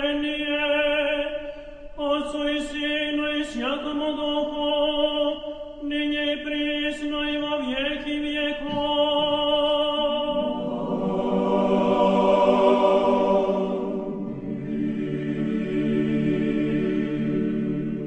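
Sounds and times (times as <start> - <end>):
choir chanting in held chords: 10.0 - 18.0.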